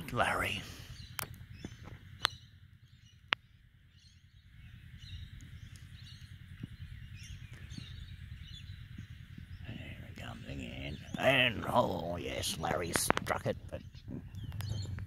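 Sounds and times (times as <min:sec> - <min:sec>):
faint birds chirping: 0:00.0 - 0:15.0
wind rumble on microphone: 0:00.0 - 0:15.0
sharp clicks: 0:14.2 - 0:15.0.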